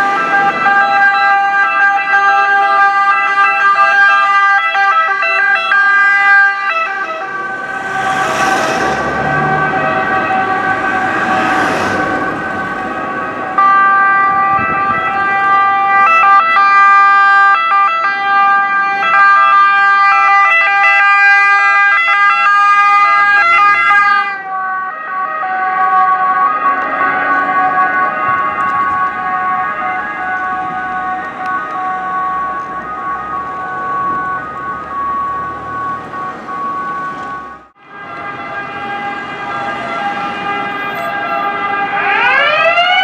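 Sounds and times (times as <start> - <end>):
two-tone sirens wailing: 0.0 - 43.0
rushing noise: 6.2 - 13.6.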